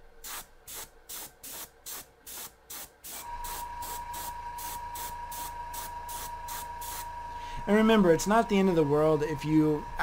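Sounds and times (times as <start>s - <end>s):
airbrush hissing: 0.2s - 7.7s
low hum: 3.3s - 10.0s.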